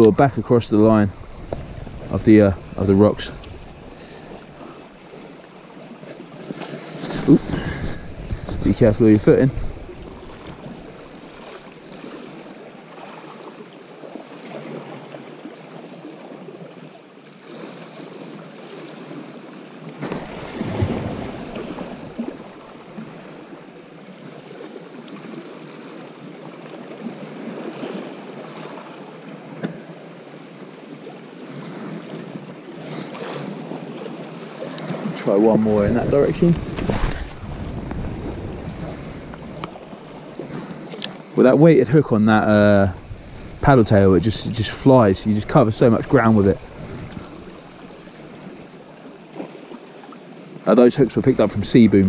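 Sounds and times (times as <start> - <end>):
wind on microphone: 0.0 - 4.8, 7.0 - 11.5, 35.4 - 40.4, 42.1 - 48.6
waves lapping against rocks: 0.0 - 52.0.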